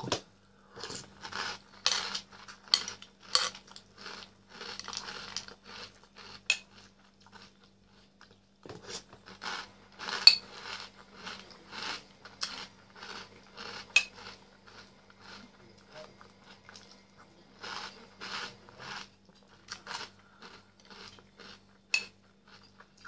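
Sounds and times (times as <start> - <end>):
chewing and slurping: 0.8 - 23.0
spoon clinking in ceramic bowl: 21.9 - 22.2.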